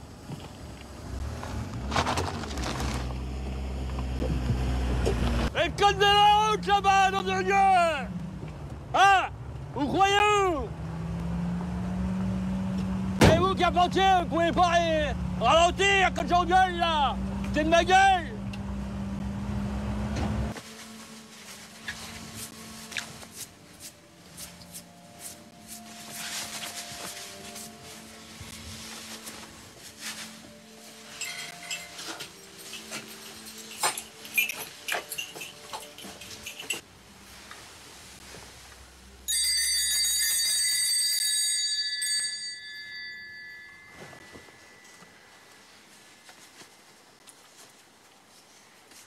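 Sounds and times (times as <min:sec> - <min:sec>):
cloth rustling: 0:20.5 - 0:38.9
brass bells jangling: 0:31.1 - 0:36.8, 0:39.3 - 0:45.0.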